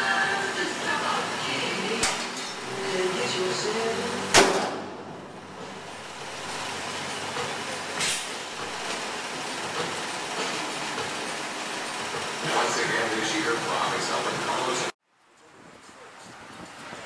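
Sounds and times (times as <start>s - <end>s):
sharp bang: 4.3s - 5.3s.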